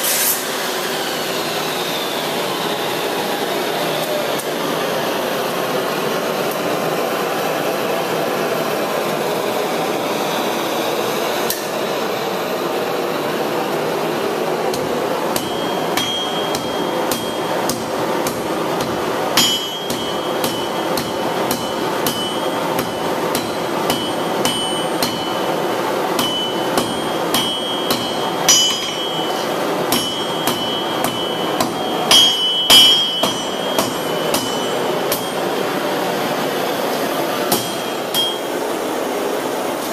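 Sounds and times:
forge blower rushing: 0.0s - 39.8s
hammer ringing on anvil: 14.7s - 36.0s, 37.5s - 38.7s.

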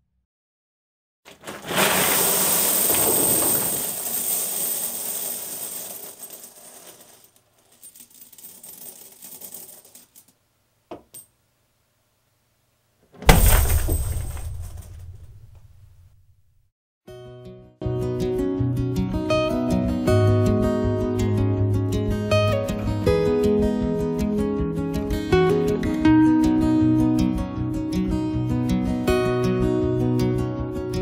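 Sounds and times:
coins pouring and jingling: 1.4s - 10.3s
heavy thud: 13.2s - 16.3s.

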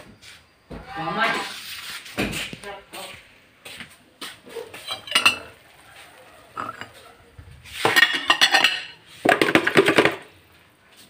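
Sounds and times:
dishes and utensils clattering: 4.5s - 10.3s.

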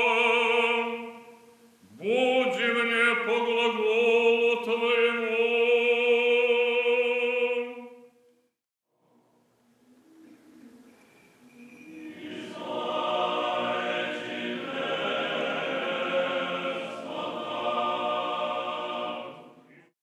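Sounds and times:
choir singing a chant: 0.0s - 1.3s, 11.8s - 19.7s.

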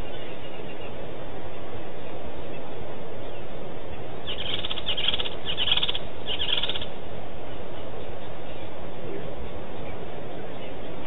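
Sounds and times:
steady background hiss: 0.0s - 11.0s
bird trilling call: 4.2s - 7.0s.

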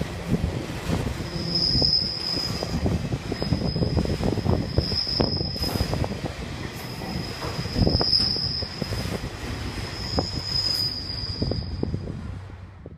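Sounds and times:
wheels rumbling and clattering on rails: 0.0s - 12.9s
steel wheels squealing: 1.2s - 6.1s, 6.8s - 12.0s.

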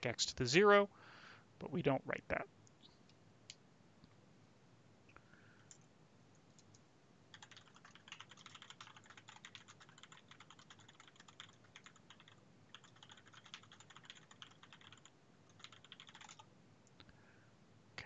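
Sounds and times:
rapid keyboard typing: 6.6s - 16.5s.

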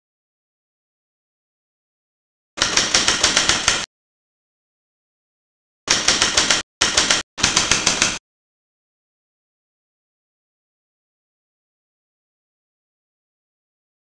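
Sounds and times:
typewriter keystrokes: 2.6s - 3.9s, 5.9s - 8.2s.

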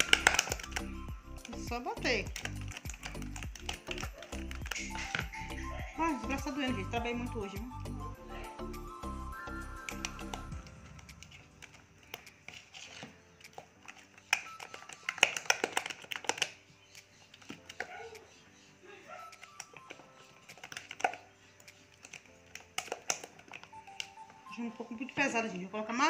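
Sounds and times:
dough slapping in metal bowl: 0.0s - 5.3s, 11.6s - 16.6s.

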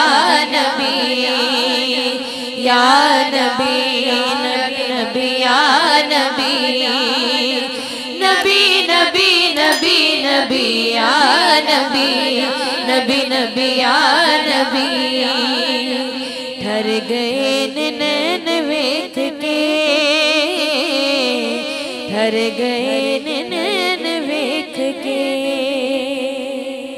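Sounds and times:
woman singing melismatic melody: 9.6s - 12.3s.

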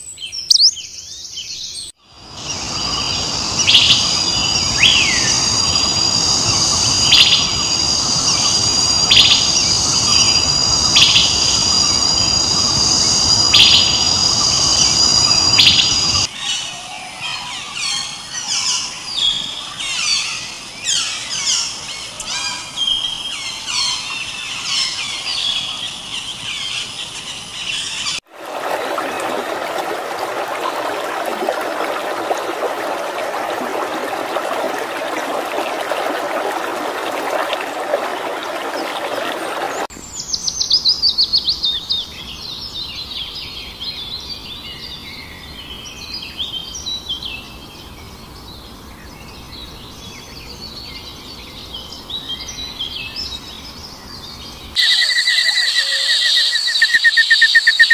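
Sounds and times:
birds singing and chirping: 0.0s - 28.2s, 54.1s - 57.9s
steady rushing noise: 2.2s - 16.3s.

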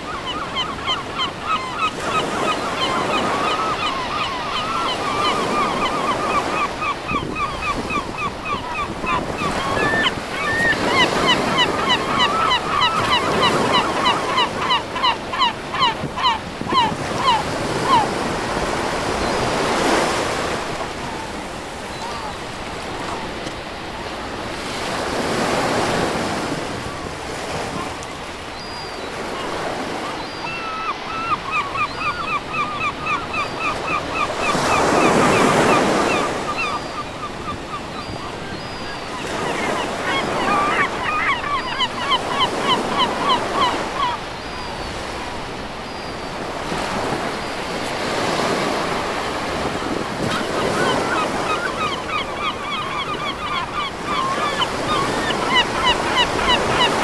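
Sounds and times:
ocean surf breaking on beach: 2.0s - 30.2s, 39.1s - 52.6s.

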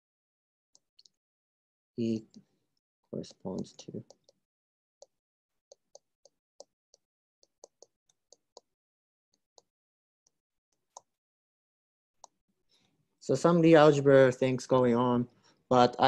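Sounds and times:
stylus tapping on a tablet: 7.4s - 8.7s.

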